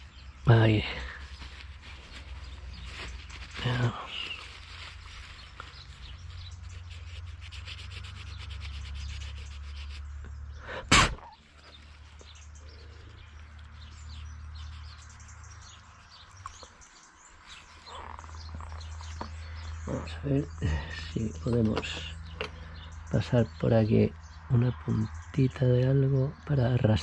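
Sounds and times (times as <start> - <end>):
paper towel scrubbing metal: 1.2 - 10.0.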